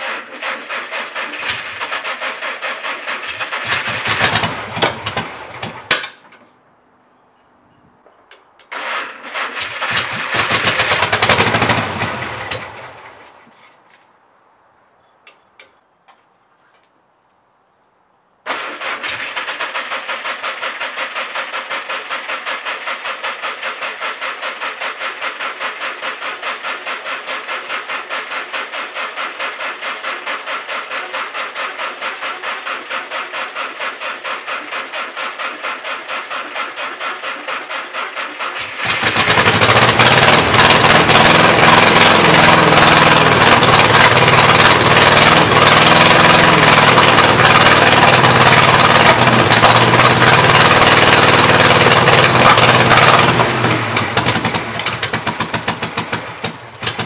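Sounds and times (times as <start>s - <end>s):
engine cranked by starter: 0.0s - 6.3s, 8.6s - 13.6s, 18.5s - 57.0s
engine running loudly: 3.2s - 5.8s, 9.8s - 13.0s, 38.6s - 57.0s.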